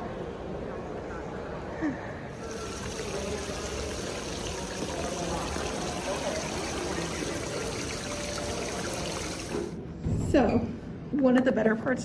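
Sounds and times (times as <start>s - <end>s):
faint murmur of voices: 0.0s - 12.0s
water splashing from fountain: 2.5s - 9.7s.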